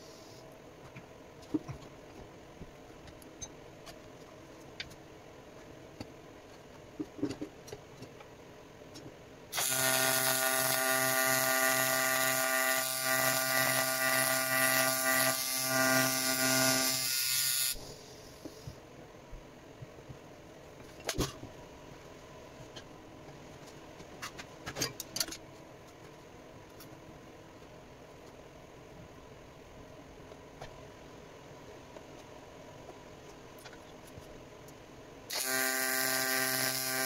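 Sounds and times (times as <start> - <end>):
welding arc buzzing: 9.5 - 18.0, 35.3 - 37.0.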